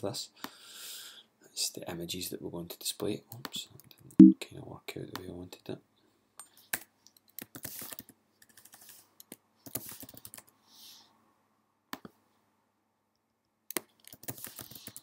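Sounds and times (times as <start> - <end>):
keyboard and mouse clicking: 13.7 - 15.0.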